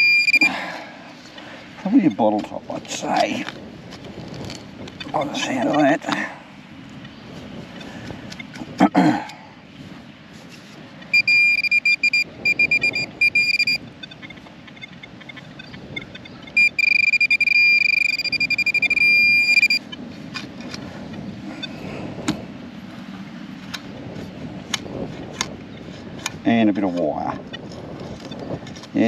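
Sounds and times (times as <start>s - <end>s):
metal detector beeps: 0.0s - 0.6s, 11.1s - 20.0s
light clicks and scrapes: 10.3s - 10.9s, 23.6s - 29.0s.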